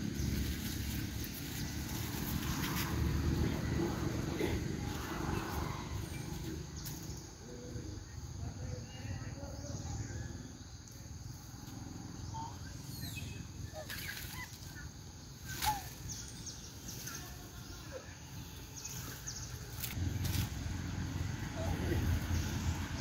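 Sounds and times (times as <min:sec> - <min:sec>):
branches rustling and creaking: 0:00.0 - 0:07.3, 0:13.7 - 0:23.0.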